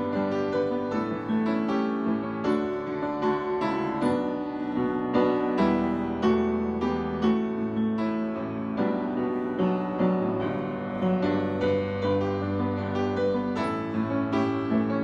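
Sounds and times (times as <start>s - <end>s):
piano playing a slow hymn: 0.0s - 15.0s.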